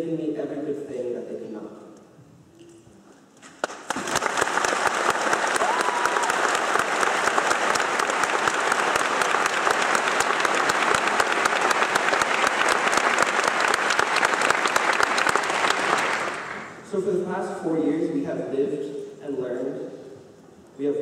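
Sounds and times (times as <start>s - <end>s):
large audience applauding: 3.5s - 16.8s.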